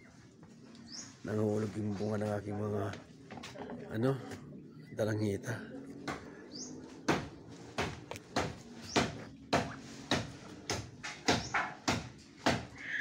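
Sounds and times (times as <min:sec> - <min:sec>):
blade chopping wood: 0:07.1 - 0:12.8.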